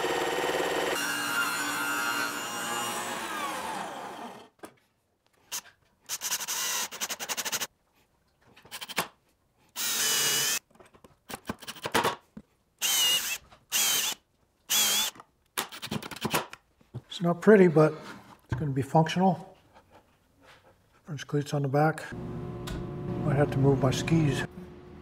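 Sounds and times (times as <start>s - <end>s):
cordless drill boring into wood: 0.0s - 4.5s, 6.1s - 7.7s, 9.8s - 10.6s, 12.8s - 15.2s
table saw spinning down: 0.0s - 4.5s.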